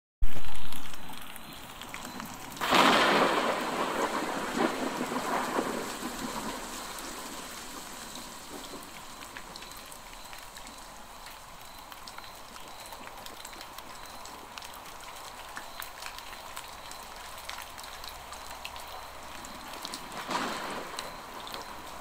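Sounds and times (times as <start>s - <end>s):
steady rain: 0.2s - 22.0s
thunder clap rumbling: 2.6s - 9.8s, 19.7s - 22.0s.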